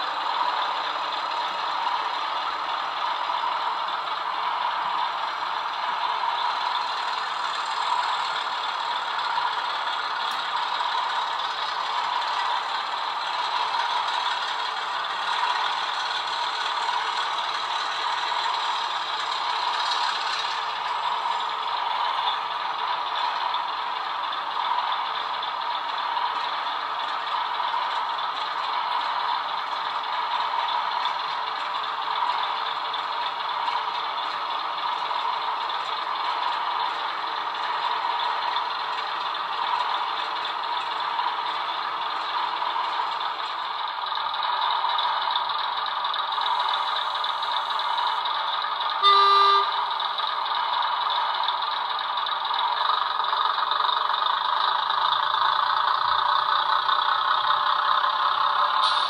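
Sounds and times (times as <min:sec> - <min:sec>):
model diesel engine sound: 0:00.0 - 0:59.0
short horn toot: 0:49.0 - 0:49.8.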